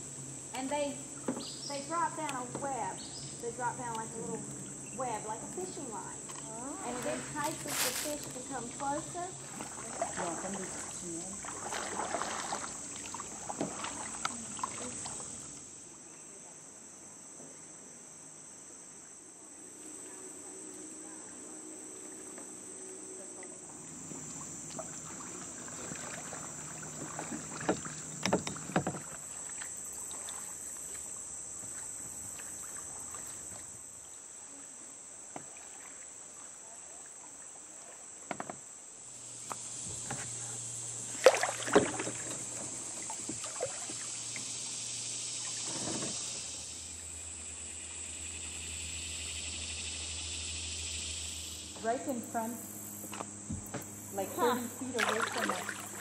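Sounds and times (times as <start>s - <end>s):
kayak paddles splashing: 0.0s - 15.7s, 21.9s - 47.6s, 51.8s - 56.0s
insects droning: 0.0s - 56.0s
paddle knocking on hull: 8.4s - 15.4s, 24.1s - 30.4s, 41.2s - 44.1s.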